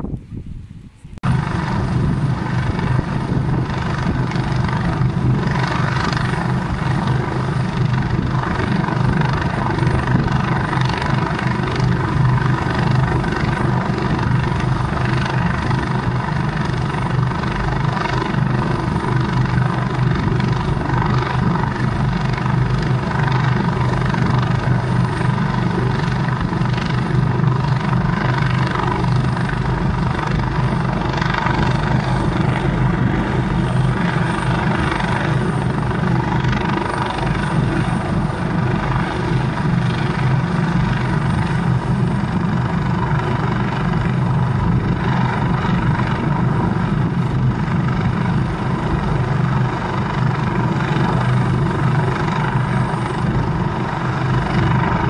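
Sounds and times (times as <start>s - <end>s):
helicopter hovering: 0.0s - 55.0s.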